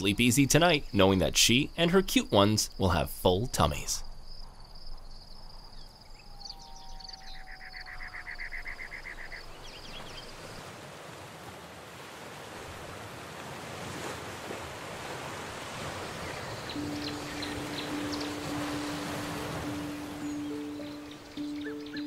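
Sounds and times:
high insect trill: 0:00.0 - 0:10.6, 0:16.3 - 0:22.0.

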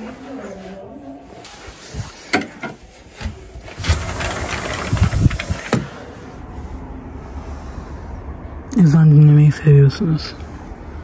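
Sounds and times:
rubbing and knocking: 0:03.2 - 0:05.9.

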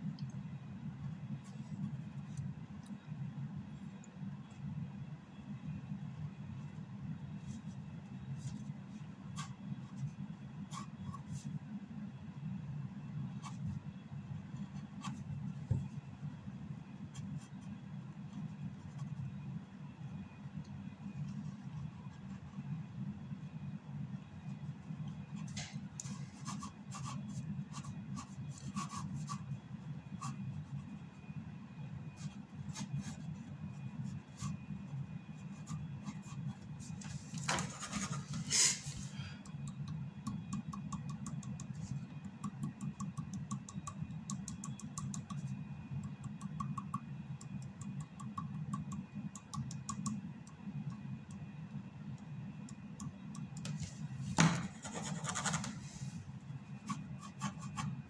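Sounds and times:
pen nib scratching on paper: 0:25.5 - 0:29.5, 0:30.2 - 0:30.9.

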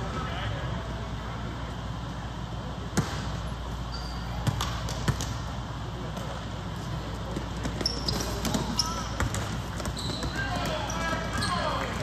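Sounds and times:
sneaker squeak: 0:03.5 - 0:04.8, 0:07.4 - 0:12.0
basketball bouncing on wooden floor: 0:07.4 - 0:12.0.

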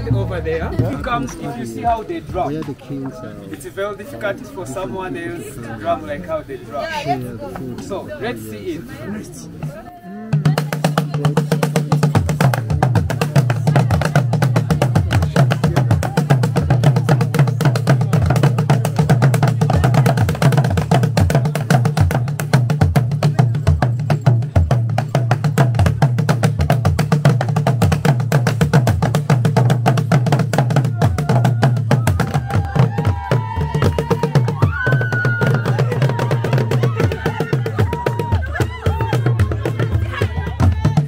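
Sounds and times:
drums beaten with sticks: 0:09.6 - 0:41.0.

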